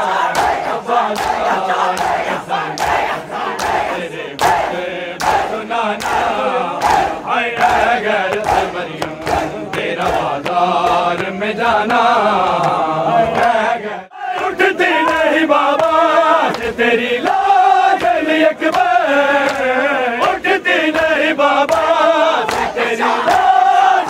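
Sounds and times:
crowd of men chanting: 0:00.0 - 0:24.0
hands slapping bare chests: 0:00.3 - 0:12.0, 0:14.4 - 0:23.7.

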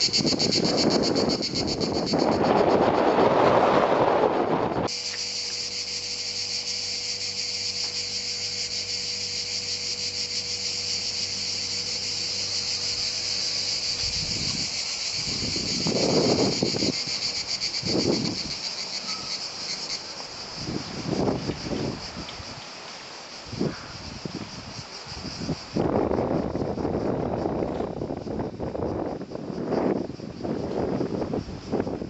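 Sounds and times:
wind buffeting microphone: 0:00.0 - 0:04.9, 0:10.9 - 0:18.9, 0:20.4 - 0:22.6, 0:23.5 - 0:32.0
cicadas buzzing: 0:00.0 - 0:32.0.

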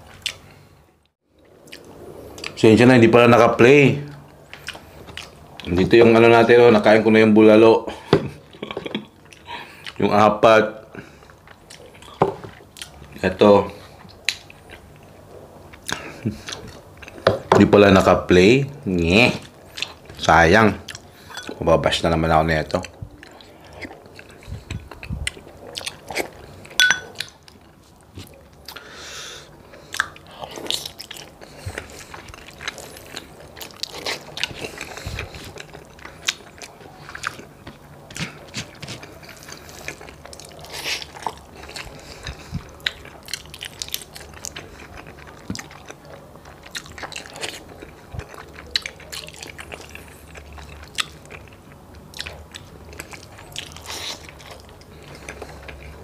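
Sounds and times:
person chewing: 0:00.1 - 0:00.6, 0:04.1 - 0:05.7, 0:08.5 - 0:10.0, 0:11.0 - 0:13.2, 0:13.8 - 0:17.5, 0:19.3 - 0:20.2, 0:20.8 - 0:21.6, 0:22.7 - 0:56.0.

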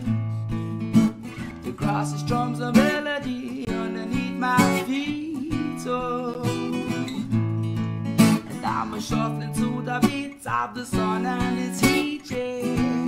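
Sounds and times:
strummed acoustic guitar: 0:00.0 - 0:13.0
person singing: 0:01.8 - 0:07.3, 0:08.4 - 0:13.0.

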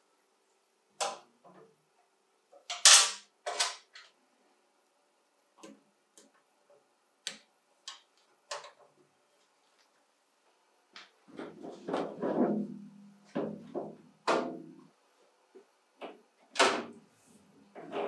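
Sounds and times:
clicks and knocks of fittings: 0:07.2 - 0:08.9.

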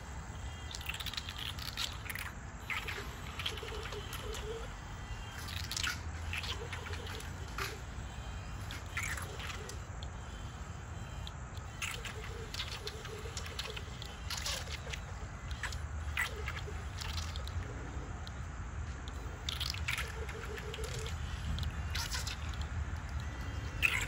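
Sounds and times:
small splashes and drips: 0:11.8 - 0:17.6, 0:19.1 - 0:23.2.

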